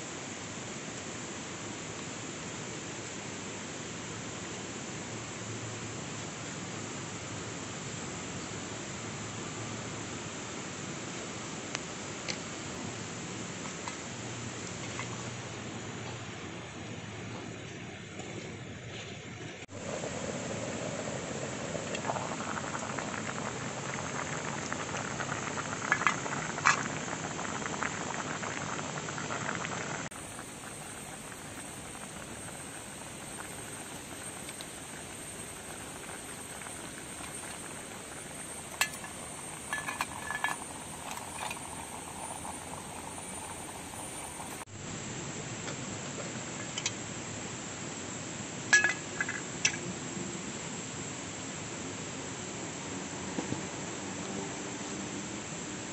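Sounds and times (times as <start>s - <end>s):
soup boiling in a pot: 0.0s - 47.8s, 48.4s - 49.9s
steady hiss: 0.0s - 55.9s
wood fire crackling: 19.6s - 44.7s
metal pot lid clinking: 48.8s - 49.4s.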